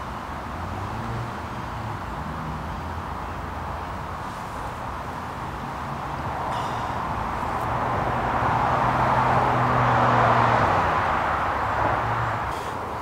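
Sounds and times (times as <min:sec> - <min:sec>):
car driving past: 0:05.4 - 0:12.8.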